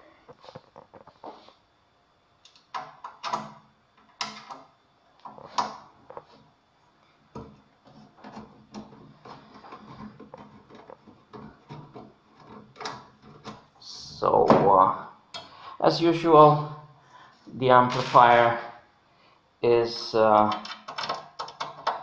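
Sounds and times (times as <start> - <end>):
soft rubbing and small clatters: 0.3 - 1.6, 7.4 - 13.7.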